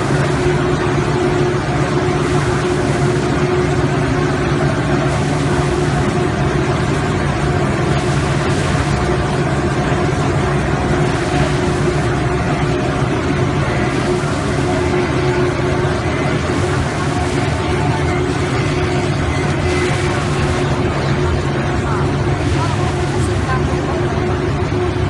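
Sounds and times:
machine humming: 0:00.0 - 0:25.0.

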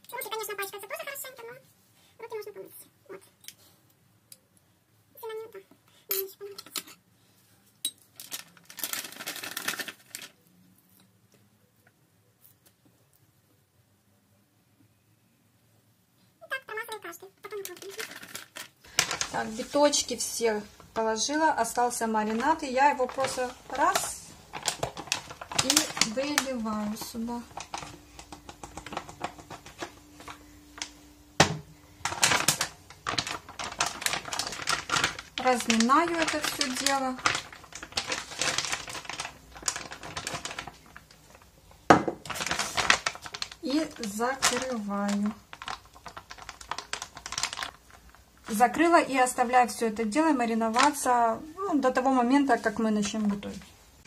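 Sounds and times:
plastic bag crinkling: 0:08.0 - 0:10.5, 0:16.8 - 0:48.8.

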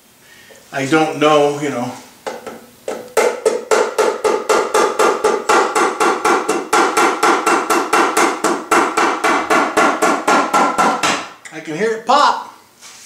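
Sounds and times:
rubber mallet tapping metal pan: 0:02.3 - 0:11.3.

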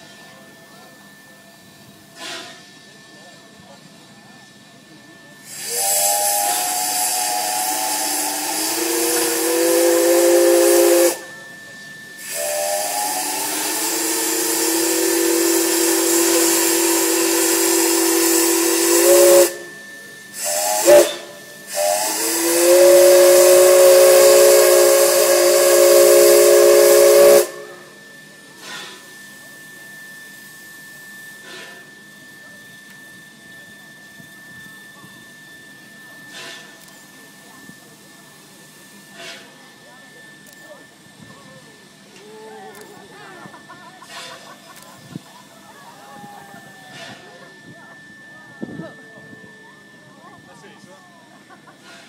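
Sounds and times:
steam hissing: 0:01.0 - 0:50.2
steam locomotive whistle: 0:05.1 - 0:41.2, 0:45.9 - 0:50.5.

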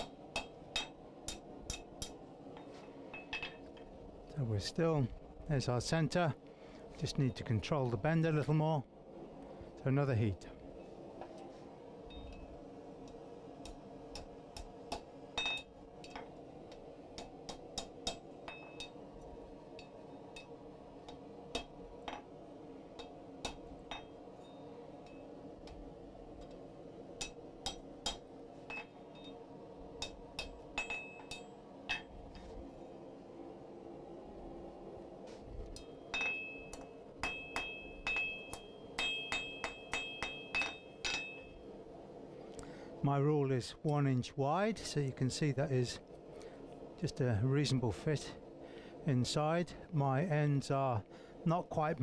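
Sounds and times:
hammer striking iron on anvil: 0:00.0 - 0:02.2, 0:03.1 - 0:03.6, 0:13.6 - 0:16.3, 0:17.2 - 0:19.0, 0:21.1 - 0:22.3, 0:23.0 - 0:24.2, 0:27.2 - 0:29.4, 0:30.0 - 0:32.2, 0:35.8 - 0:41.6
faint steady hum: 0:00.0 - 0:52.0
hammer blows on hot iron: 0:27.2 - 0:32.5, 0:35.7 - 0:41.6.

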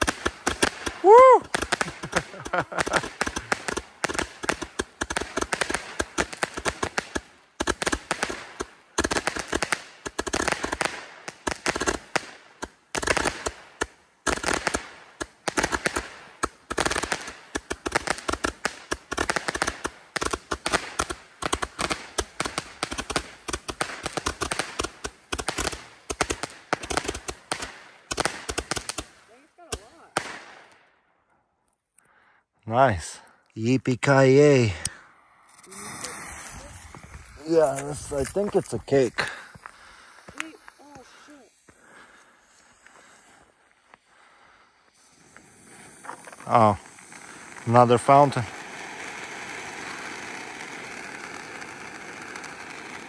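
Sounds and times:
firework tube popping and crackling: 0:00.0 - 0:30.8, 0:34.7 - 0:53.0.

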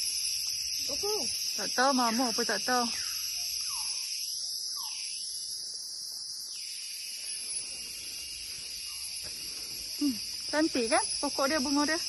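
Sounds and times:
insect chorus drone: 0:00.0 - 0:12.0.

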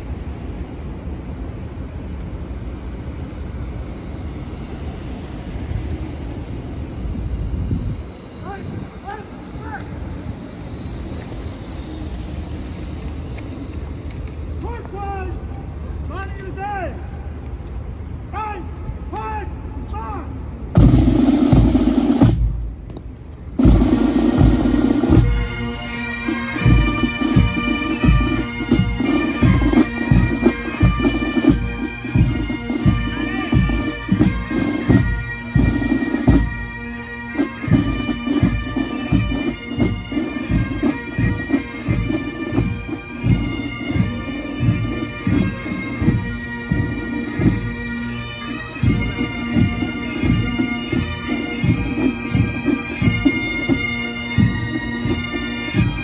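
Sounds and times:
bagpipes playing: 0:02.4 - 0:16.6, 0:20.8 - 0:22.5, 0:23.6 - 0:56.0
drums beating march time: 0:20.6 - 0:56.0.

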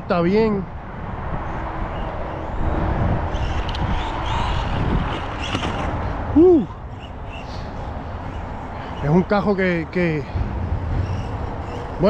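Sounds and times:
low rumble: 0:10.1 - 0:12.0.

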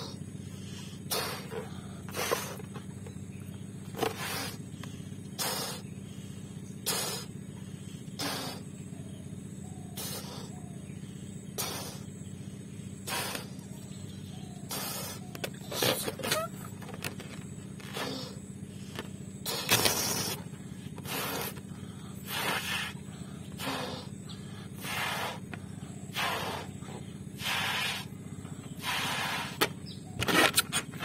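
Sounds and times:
puffs blowing up balloon: 0:00.0 - 0:02.8, 0:04.0 - 0:05.9, 0:06.8 - 0:07.4, 0:08.1 - 0:08.7, 0:10.0 - 0:10.5, 0:11.6 - 0:12.1, 0:13.0 - 0:13.6, 0:14.7 - 0:24.1, 0:24.8 - 0:28.2, 0:28.8 - 0:31.0
quick breaths: 0:00.0 - 0:02.9, 0:04.0 - 0:09.0, 0:09.9 - 0:13.8, 0:14.6 - 0:16.2, 0:17.8 - 0:29.8
steady low hum: 0:00.0 - 0:31.0.

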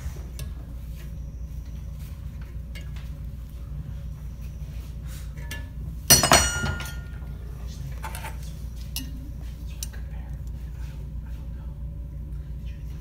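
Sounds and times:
metal clang against vise: 0:06.1 - 0:07.2.

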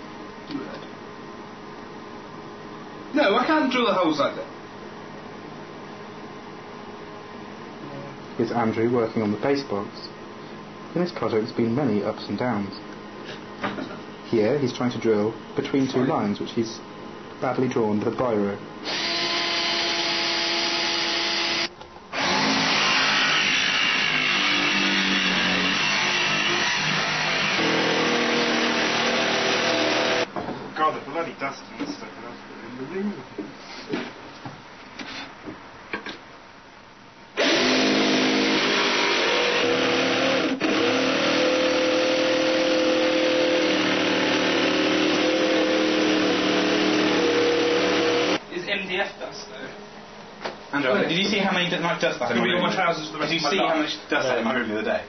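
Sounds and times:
noisy mechanical sound: 0:00.0 - 0:55.0
cordless drill boring: 0:18.8 - 0:30.3, 0:37.4 - 0:48.4.

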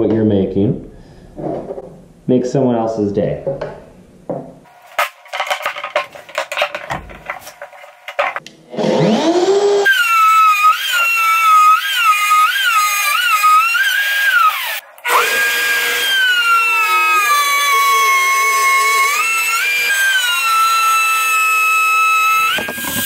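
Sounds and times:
router whining: 0:07.6 - 0:23.0.

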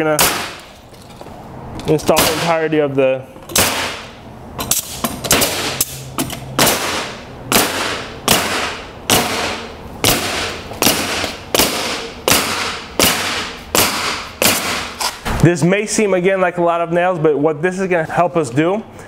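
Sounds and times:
pneumatic nailer firing: 0:00.0 - 0:00.8, 0:02.1 - 0:02.6, 0:03.5 - 0:15.4.

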